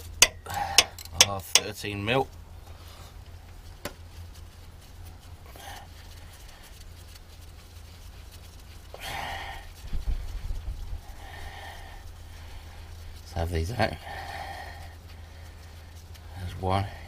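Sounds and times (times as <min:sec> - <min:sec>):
steady low hum: 0:00.0 - 0:17.0
person breathing out hard: 0:14.0 - 0:15.6.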